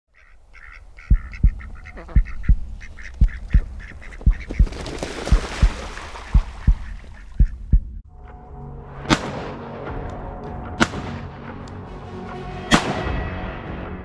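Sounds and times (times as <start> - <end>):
duck quacking: 0.1 - 4.7, 6.2 - 7.8.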